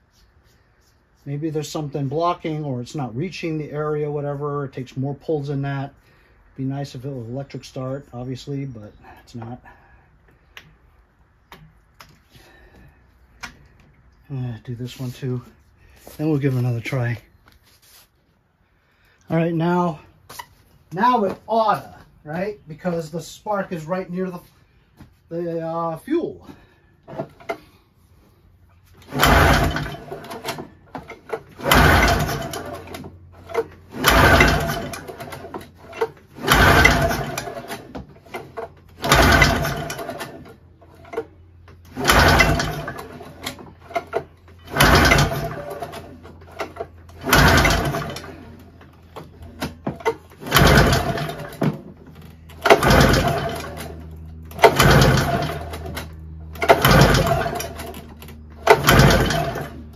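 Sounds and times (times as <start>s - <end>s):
engine cranking with recoil starter: 26.5s - 27.8s, 28.9s - 59.9s.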